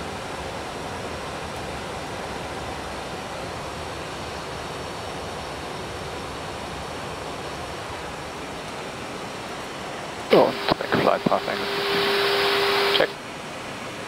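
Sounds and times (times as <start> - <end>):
aircraft cabin air noise: 10.3 - 13.2.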